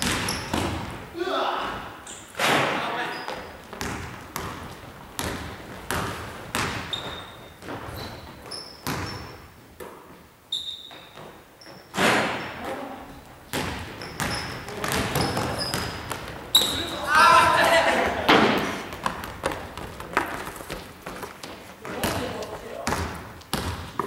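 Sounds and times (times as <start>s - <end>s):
basketball bouncing on hardwood floor: 0.0s - 1.0s, 3.3s - 9.4s, 13.5s - 16.9s, 18.6s - 24.0s
sneakers squeaking on court: 0.0s - 1.0s, 2.0s - 9.9s, 10.5s - 17.6s, 18.5s - 24.0s.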